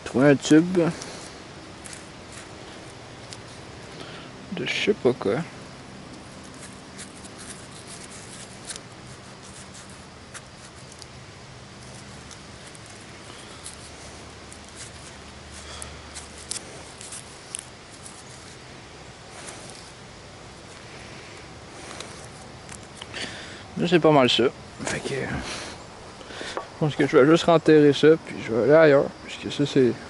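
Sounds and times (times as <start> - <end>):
hand scraping soil: 0.1 - 3.7, 6.1 - 20.0.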